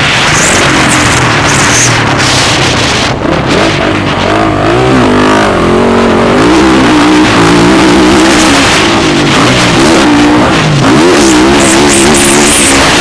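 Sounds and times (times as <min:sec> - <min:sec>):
motocross bike engines revving: 0:00.0 - 0:13.0.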